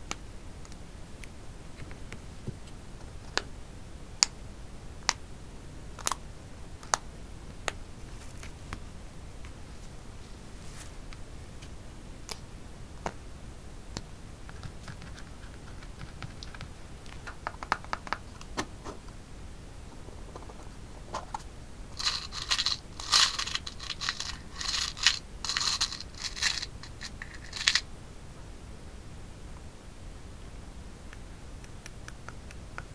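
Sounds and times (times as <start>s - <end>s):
light clicks and rustles of handling: 20.3s - 27.8s
metal charms rattling in a box: 22.0s - 27.8s.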